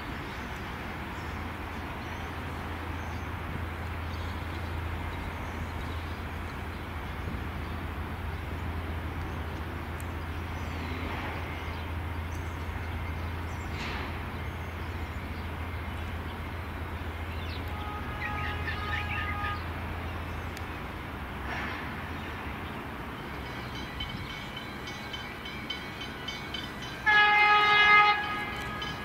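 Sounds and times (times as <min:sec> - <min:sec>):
electric train approaching: 0:00.0 - 0:29.0
birds chirping: 0:01.2 - 0:21.0.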